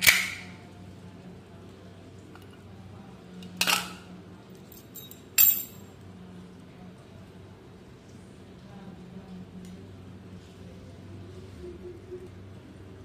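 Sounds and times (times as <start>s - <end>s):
key clinking: 4.6s - 5.8s.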